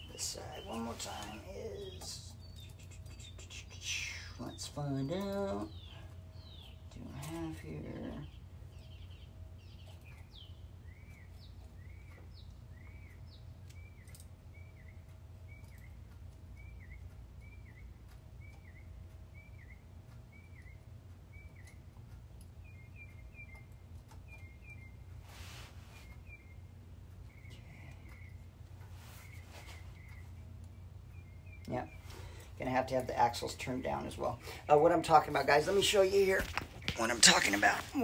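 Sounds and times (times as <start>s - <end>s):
bird chirps: 0.0s - 38.0s
low steady hum: 0.0s - 38.0s.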